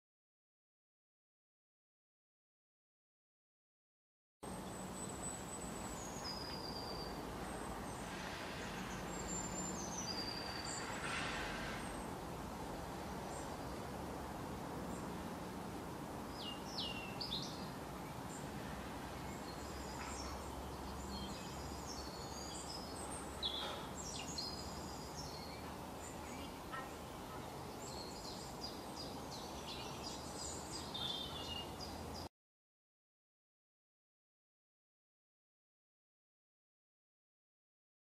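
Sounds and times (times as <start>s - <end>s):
small birds chirping: 4.5s - 12.2s, 16.2s - 32.3s
steady low hiss: 4.5s - 32.3s.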